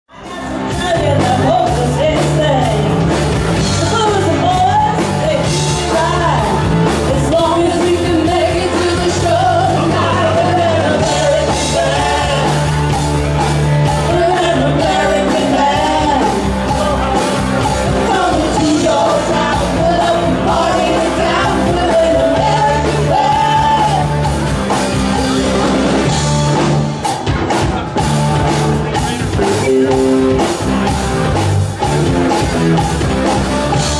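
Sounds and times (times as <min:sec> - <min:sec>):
bass guitar: 0:00.0 - 0:33.9
drums: 0:00.0 - 0:33.9
women singing: 0:00.1 - 0:03.0, 0:03.7 - 0:13.1, 0:13.9 - 0:24.3
electric guitar: 0:00.1 - 0:33.9.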